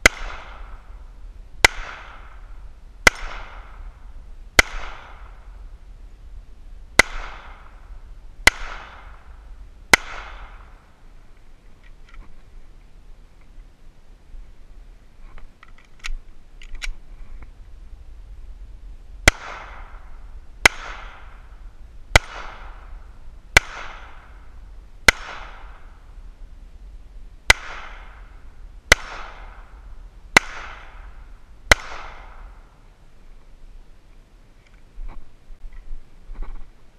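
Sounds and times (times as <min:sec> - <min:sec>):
pistol shots with echo: 0:00.0 - 0:00.8, 0:01.6 - 0:02.4, 0:03.0 - 0:03.9, 0:04.6 - 0:05.5, 0:07.0 - 0:07.8, 0:08.4 - 0:09.3, 0:09.9 - 0:10.8, 0:19.2 - 0:21.4, 0:22.2 - 0:22.9, 0:23.6 - 0:24.4, 0:25.1 - 0:25.9, 0:27.5 - 0:28.3, 0:28.9 - 0:29.7, 0:30.4 - 0:32.6
sharp clicks: 0:15.4 - 0:17.5.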